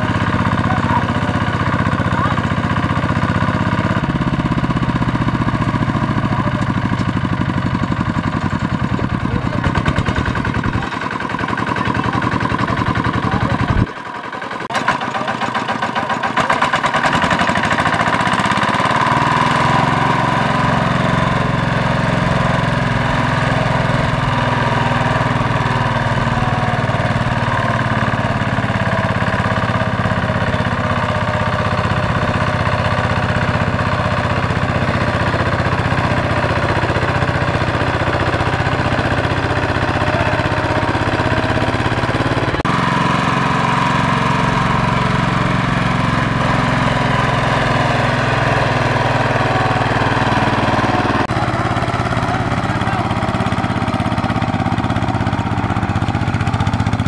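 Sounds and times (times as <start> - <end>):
diesel engine chugging: 0.0 - 57.0.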